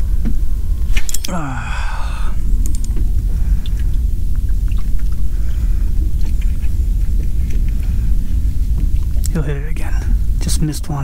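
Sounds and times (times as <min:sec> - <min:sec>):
wind buffeting microphone: 0:01.8 - 0:11.0.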